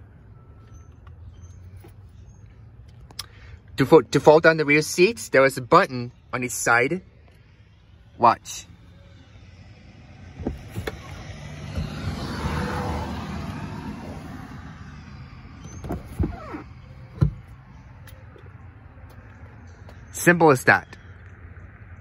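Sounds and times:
seatbacks thumping down: 0:10.3 - 0:12.3, 0:15.6 - 0:17.6.

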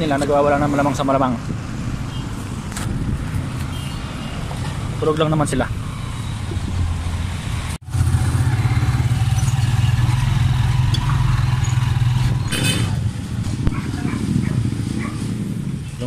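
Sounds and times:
motorcycle engine running: 0:07.8 - 0:15.9.

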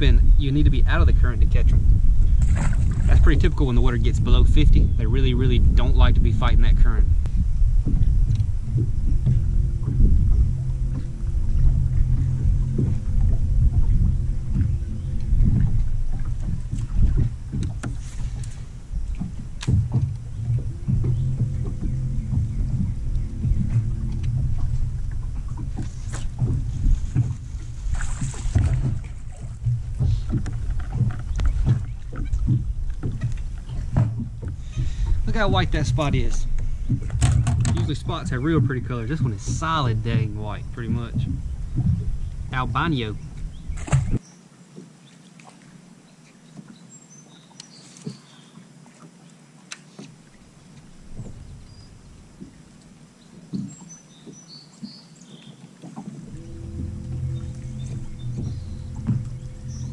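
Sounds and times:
wind rumble on microphone: 0:00.0 - 0:44.3, 0:50.7 - 0:52.8, 0:55.9 - 0:59.9
low steady hum: 0:00.0 - 0:46.5, 0:55.7 - 0:59.9
water lapping against boat hull: 0:00.0 - 0:59.9
small knocks: 0:07.8 - 0:35.2, 0:36.0 - 0:39.3, 0:55.8 - 0:59.9.

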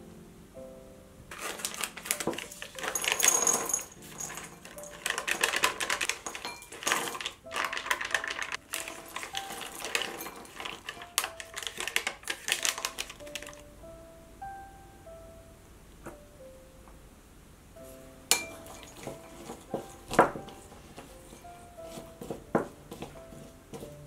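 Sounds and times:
nuts clinking into glass bowl: 0:01.3 - 0:13.6, 0:18.3 - 0:20.4
snack packet crinkling: 0:01.3 - 0:13.6.

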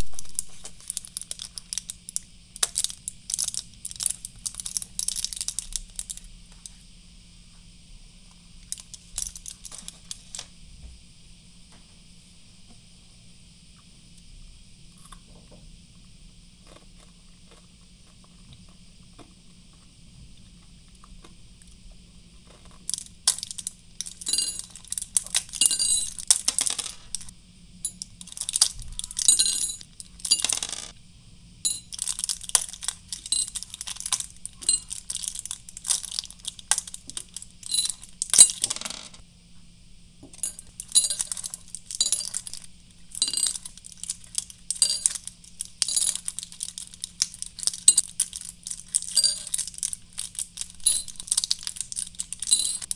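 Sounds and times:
plastic and foil crackling: 0:00.0 - 0:06.2, 0:31.9 - 0:38.4, 0:40.8 - 0:52.9
candies clicking onto a ceramic dish: 0:00.1 - 0:06.2, 0:31.7 - 0:39.2, 0:43.2 - 0:52.9.

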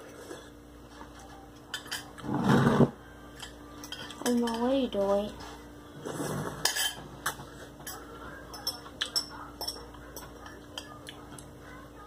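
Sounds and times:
cutlery clinking on glass bowl: 0:01.7 - 0:02.2, 0:03.3 - 0:04.7, 0:06.6 - 0:11.2.

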